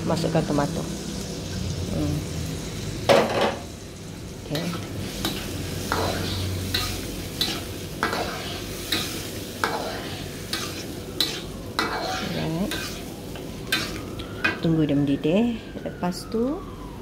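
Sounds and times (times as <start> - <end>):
sauce sizzling in oil: 0.0 - 15.2
metal ladle scraping wok: 4.6 - 14.6.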